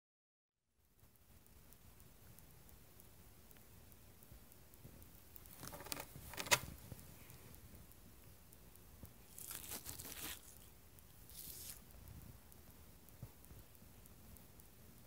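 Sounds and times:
sharp click: 5.0 - 6.8.

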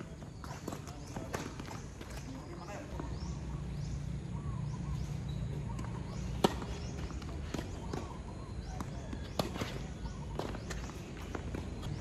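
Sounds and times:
tennis ball bouncing: 5.6 - 12.0
racket striking tennis ball: 5.8 - 11.6.

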